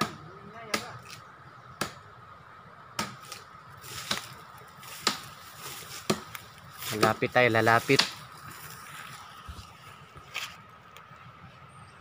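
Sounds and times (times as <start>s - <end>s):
knife chopping into tree trunk: 3.0s - 3.4s, 4.0s - 5.3s, 5.9s - 7.2s, 7.8s - 8.2s.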